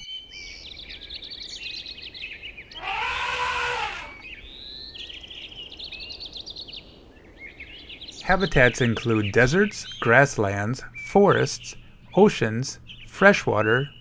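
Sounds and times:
small birds chirping: 0:00.0 - 0:14.0
elephant trumpeting: 0:02.7 - 0:04.2.

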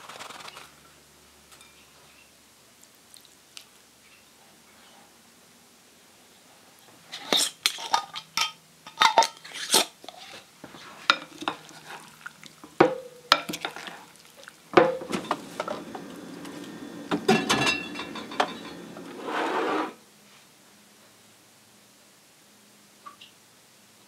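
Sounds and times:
stirring food in a bowl: 0:07.2 - 0:16.6
spoon knocking glass bowl: 0:12.8 - 0:13.6
steady noise swell: 0:15.0 - 0:20.0.

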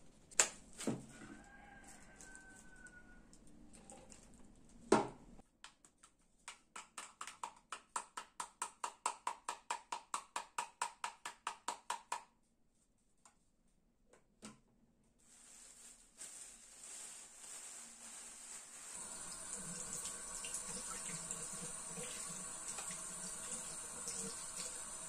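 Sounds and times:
plastic bag rustling: 0:15.2 - 0:19.4.

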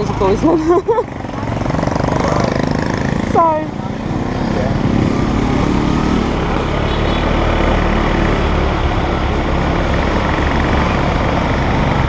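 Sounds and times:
road noise: 0:00.0 - 0:12.0.

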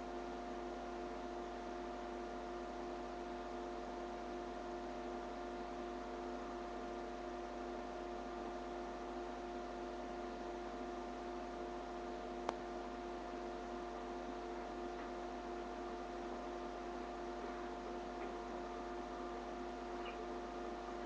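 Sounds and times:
electrical hum with faint hiss: 0:00.0 - 0:21.0
small click: 0:12.4 - 0:12.6.

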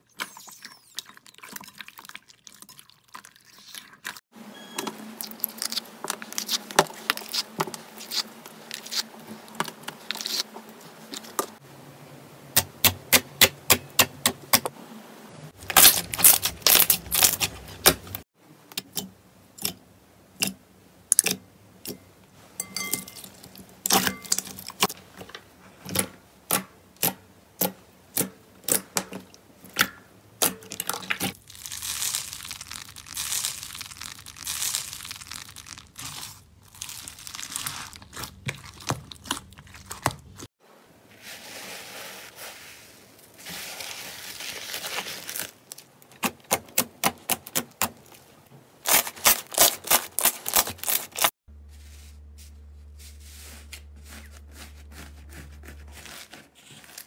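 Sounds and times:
crinkly crunching of beaded slime: 0:05.2 - 0:10.5, 0:15.6 - 0:17.9, 0:30.8 - 0:40.5, 0:41.2 - 0:46.2, 0:48.8 - 0:57.0.

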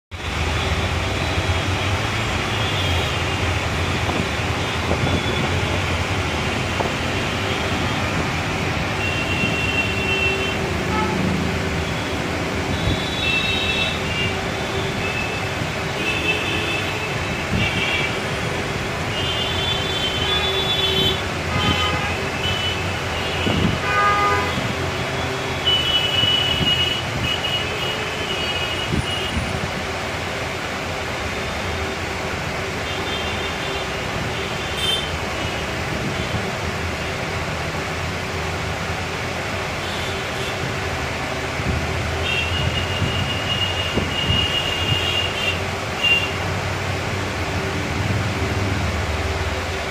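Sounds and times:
road traffic noise: 0:00.0 - 0:49.9
vehicle horns tooting: 0:04.6 - 0:05.8, 0:08.9 - 0:18.5, 0:19.1 - 0:29.5, 0:32.9 - 0:36.4, 0:42.2 - 0:46.4.

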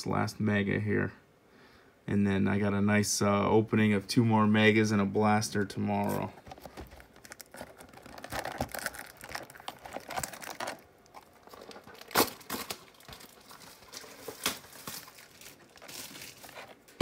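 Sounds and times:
plastic wrapping crinkling and tearing: 0:06.0 - 0:17.0.

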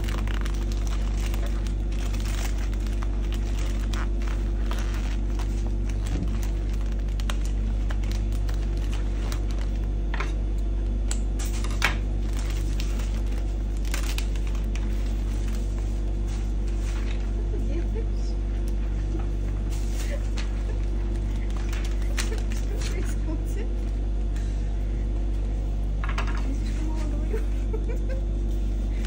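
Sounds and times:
wrapping paper crinkling: 0:00.0 - 0:10.2, 0:11.4 - 0:17.6, 0:19.6 - 0:23.3
steady low hum: 0:00.0 - 0:29.0.

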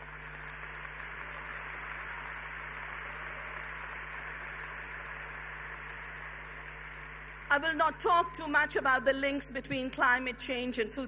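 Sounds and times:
large crowd applauding: 0:00.0 - 0:07.6.

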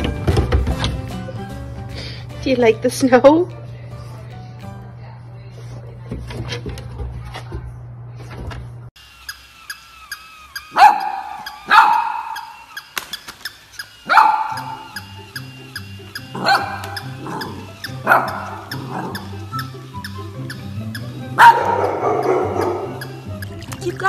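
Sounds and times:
toy dog barking: 0:09.3 - 0:24.0.

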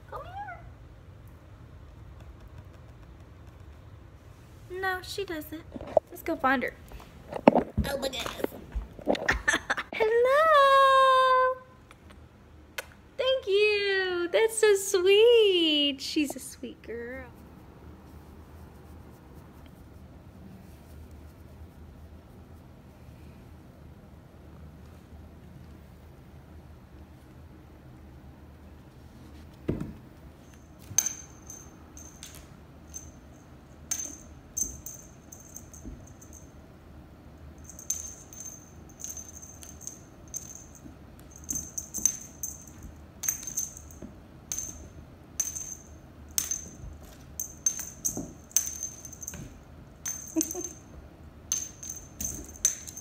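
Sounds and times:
small jingle bell jingling: 0:30.4 - 0:36.6, 0:37.6 - 0:53.0.

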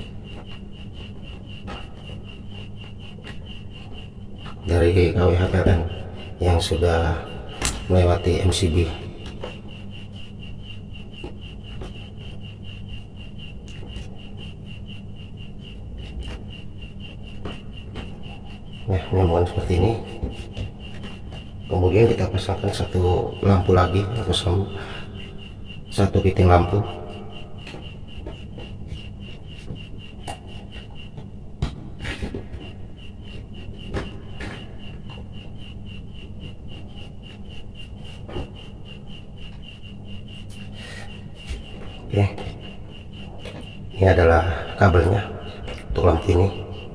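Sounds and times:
sharp knocks: 0:07.5 - 0:08.0, 0:31.2 - 0:35.2.

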